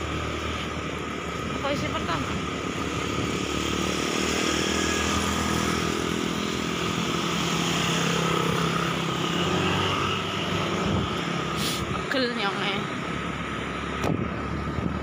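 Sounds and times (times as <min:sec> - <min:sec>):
wind rushing over microphone: 0:10.4 - 0:12.1, 0:13.9 - 0:15.0.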